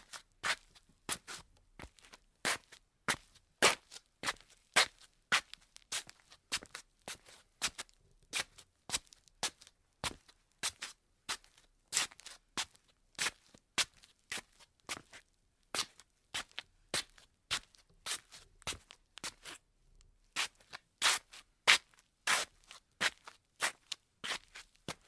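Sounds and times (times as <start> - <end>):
slippers shuffling on tile floor: 15.8 - 19.6, 20.4 - 25.0.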